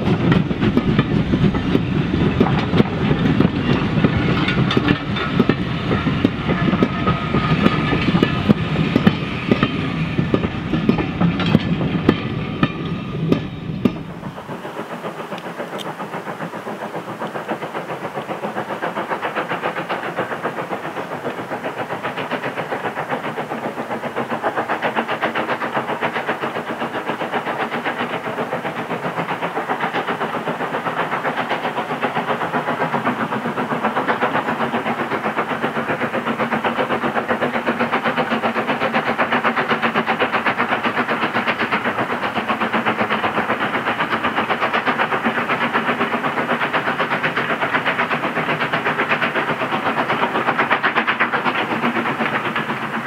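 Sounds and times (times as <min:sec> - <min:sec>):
train running: 0:00.0 - 0:53.0.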